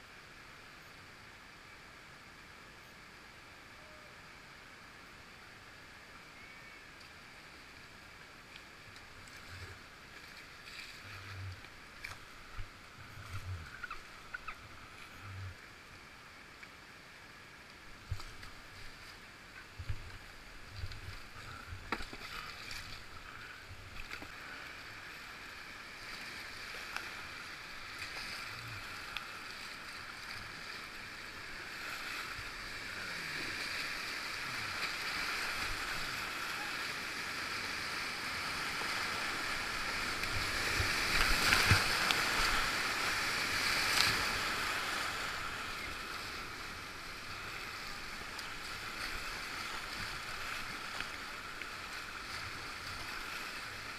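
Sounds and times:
rushing whitewater: 0:00.0 - 0:53.9
paddle splashes: 0:08.5 - 0:15.1, 0:17.8 - 0:53.9.

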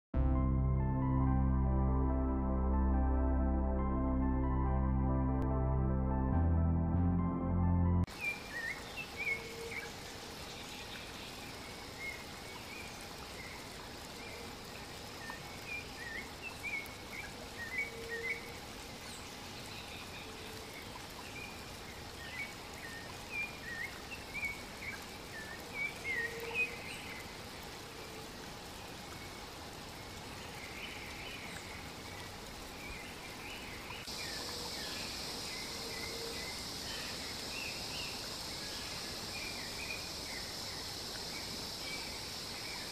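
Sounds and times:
high insect buzz: 0:34.1 - 0:42.9.

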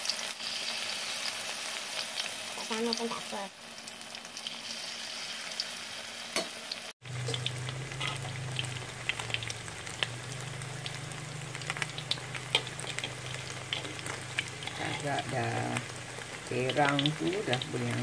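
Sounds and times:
batter sizzling in hot oil: 0:00.0 - 0:18.0
low steady hum: 0:07.0 - 0:18.0.

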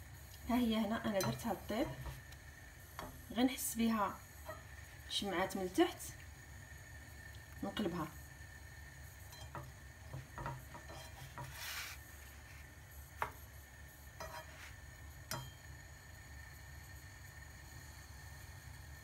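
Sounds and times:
low steady hum: 0:00.0 - 0:19.0
spatula tapping frying pan: 0:01.2 - 0:02.4, 0:03.0 - 0:03.2, 0:09.3 - 0:11.6, 0:15.2 - 0:15.6.

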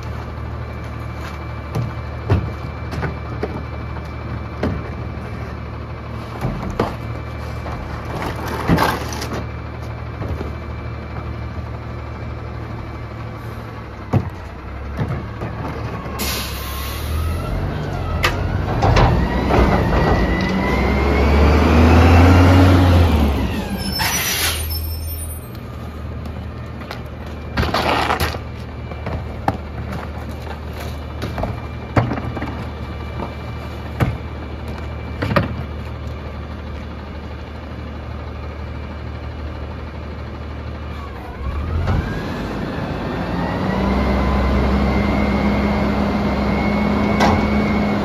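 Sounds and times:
garbage truck engine: 0:00.0 - 0:48.0
air brake hiss: 0:16.2 - 0:17.3, 0:24.0 - 0:24.9.

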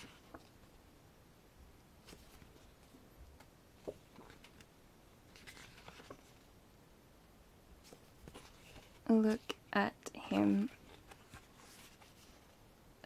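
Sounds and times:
pages being turned: 0:02.0 - 0:04.7, 0:05.3 - 0:06.5, 0:07.8 - 0:09.5, 0:10.3 - 0:12.6.

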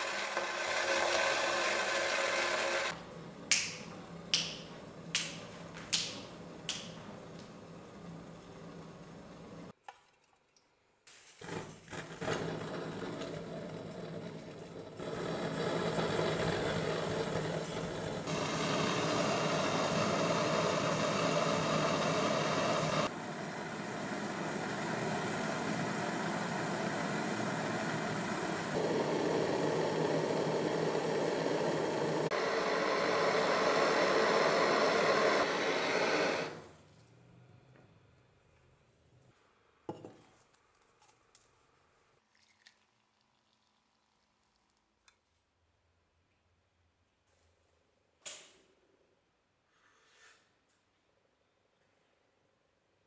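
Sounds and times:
blowtorch burning: 0:00.0 - 0:03.0, 0:11.4 - 0:36.8.

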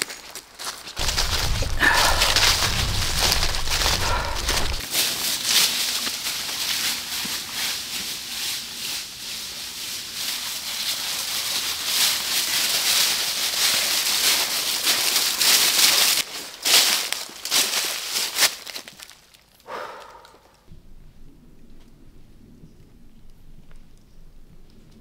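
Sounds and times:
footsteps on dry leaves: 0:00.0 - 0:19.5.

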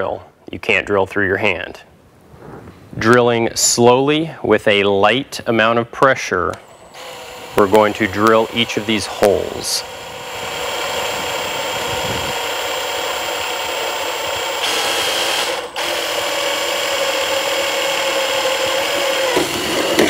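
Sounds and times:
electric drill boring through metal: 0:06.6 - 0:20.0.

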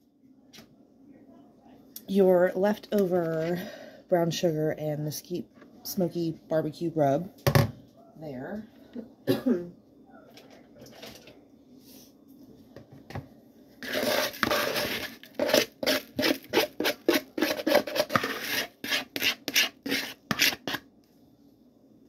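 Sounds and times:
sugar sliding out of bowl: 0:13.8 - 0:20.8
spatula scraping plastic bowl: 0:13.8 - 0:20.9.

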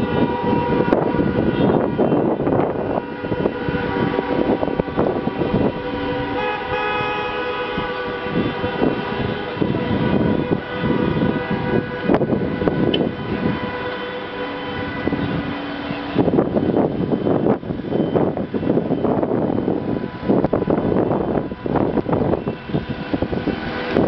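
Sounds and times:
car horns blasting: 0:00.0 - 0:16.4.

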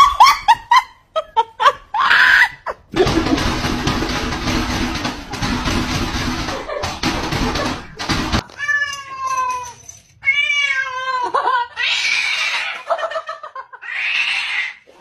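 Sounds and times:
cat meowing: 0:08.4 - 0:11.1.

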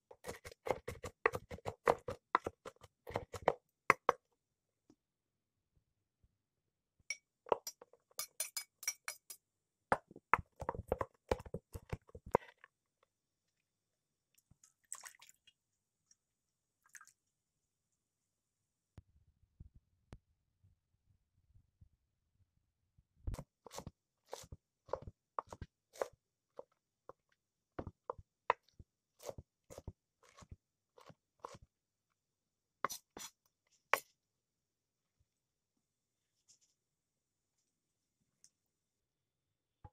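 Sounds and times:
knife chopping on cutting board: 0:00.1 - 0:04.1, 0:23.4 - 0:26.2
knife clinking on ceramic plate: 0:07.1 - 0:09.4.

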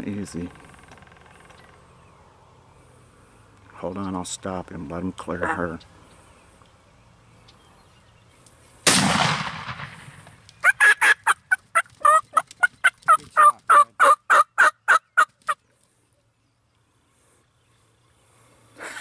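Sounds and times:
turkey calling: 0:05.4 - 0:05.8, 0:10.6 - 0:15.6
shotgun shot: 0:08.8 - 0:10.3.

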